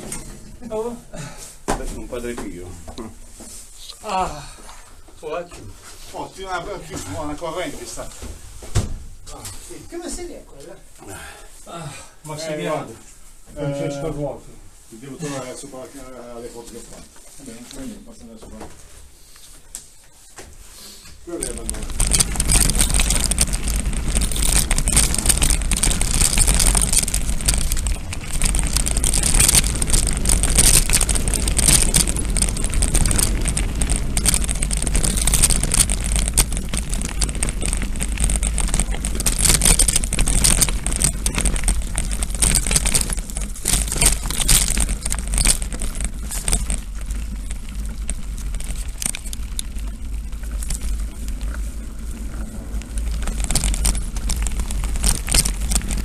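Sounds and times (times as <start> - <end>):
bike rattling and clicking: 21.3 - 56.0.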